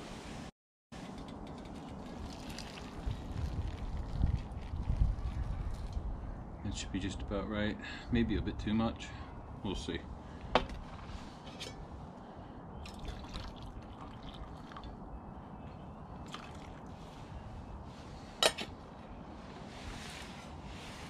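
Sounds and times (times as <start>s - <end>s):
water dripping: 12.8s - 15.0s
hot water pouring into mug: 12.9s - 14.9s.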